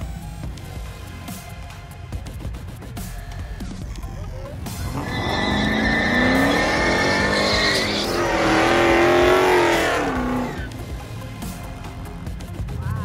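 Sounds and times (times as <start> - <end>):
tires squealing: 4.6 - 10.8
car engine revving: 4.7 - 10.8.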